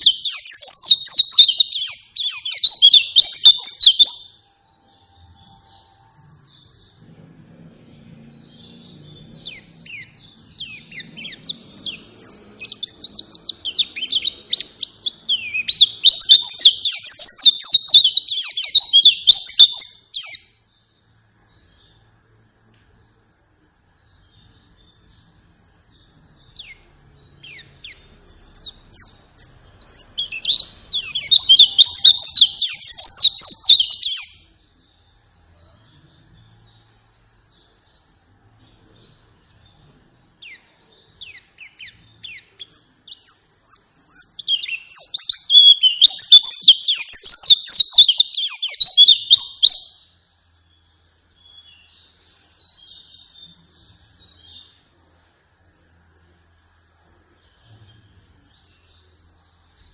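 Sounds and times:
bird twittering: 0.0 - 4.3, 8.0 - 20.5, 26.2 - 34.4, 40.4 - 50.2.

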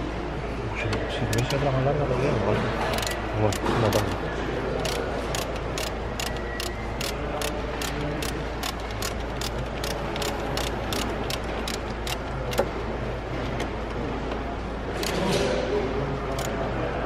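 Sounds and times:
mechanical clicking: 2.8 - 4.2, 4.8 - 12.7, 16.3 - 16.6.

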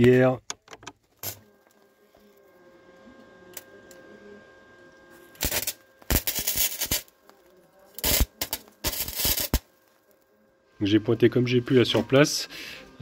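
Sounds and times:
welding arc crackle: 5.2 - 10.4.

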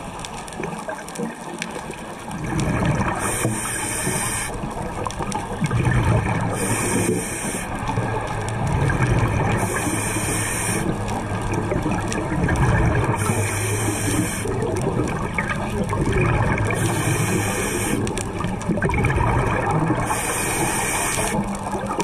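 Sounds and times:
exhaled air bubbling underwater: 0.0 - 22.0
regulator hissing inhale underwater: 3.1 - 4.6, 6.5 - 8.0, 9.5 - 11.1, 13.0 - 14.8, 16.6 - 18.4, 19.9 - 21.6.

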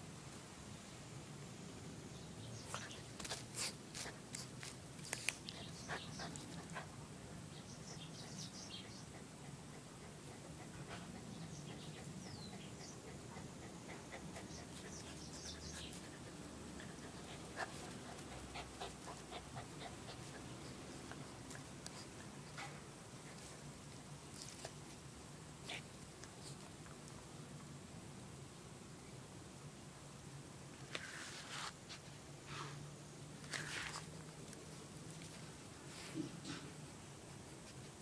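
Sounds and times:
light clicks and rustles in grass: 2.6 - 6.8, 33.4 - 36.8
dog panting: 5.5 - 23.9.

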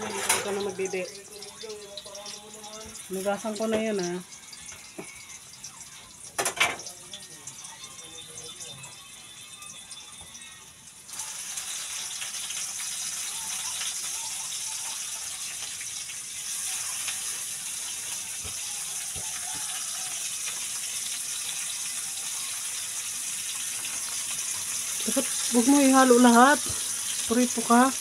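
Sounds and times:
tap water running into sink: 0.0 - 7.6, 15.2 - 28.0.

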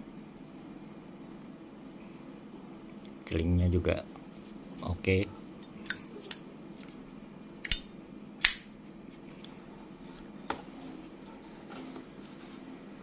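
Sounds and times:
metal lighter clicks: 7.6 - 8.6.

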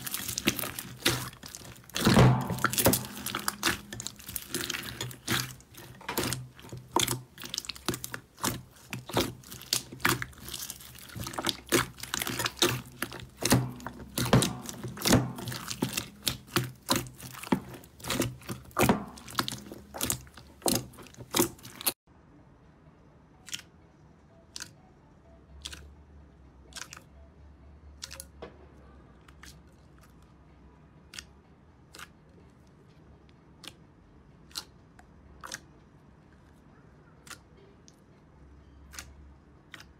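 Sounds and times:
slime crackling and popping: 0.0 - 22.0.

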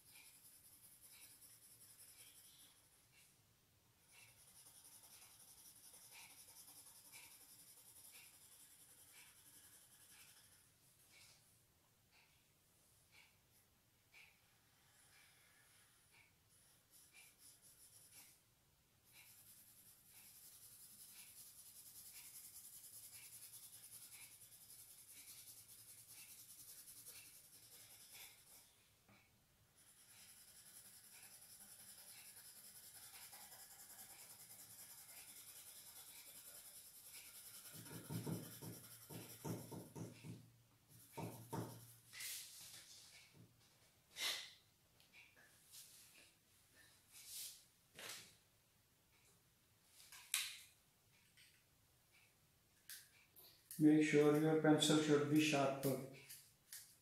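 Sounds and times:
pencil scratching on paper: 0.0 - 3.4, 4.0 - 11.5, 14.1 - 43.2.

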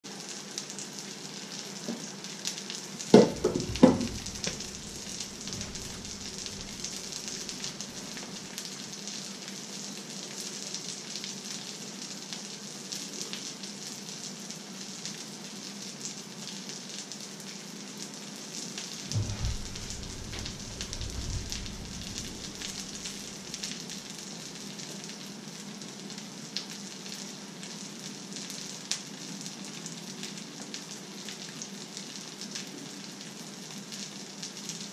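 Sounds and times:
dull thump: 3.2 - 8.4, 19.1 - 23.9
sharp knocks: 3.2 - 8.5, 19.1 - 23.9.

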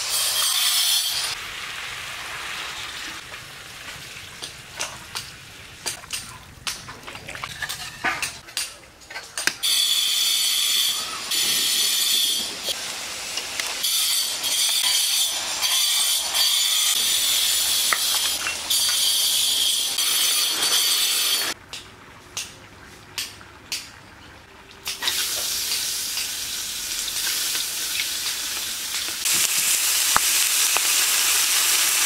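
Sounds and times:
loud sizzling hiss: 0.0 - 4.3, 9.7 - 21.6, 24.9 - 32.0
food crackling in hot oil: 1.3 - 8.5, 11.2 - 24.0, 24.8 - 32.0.

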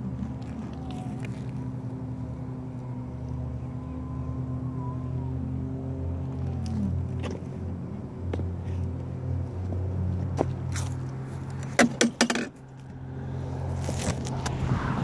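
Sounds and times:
sharp knocks and clicks: 11.6 - 12.6.

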